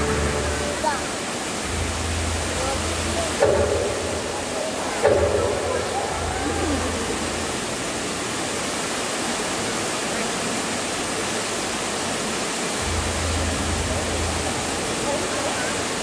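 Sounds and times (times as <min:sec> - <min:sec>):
low hum: 0:00.0 - 0:08.5, 0:12.8 - 0:15.1
steady rushing noise: 0:11.2 - 0:16.0.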